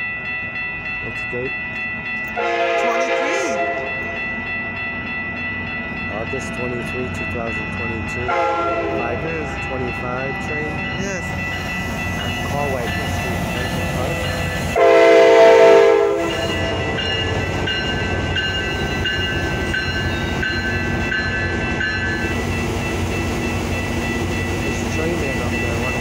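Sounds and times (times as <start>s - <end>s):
crossing warning bell ringing: 0.0s - 26.0s
train rumbling past: 0.0s - 26.0s
train horn blast: 2.4s - 4.0s, 8.3s - 9.1s, 14.8s - 16.5s.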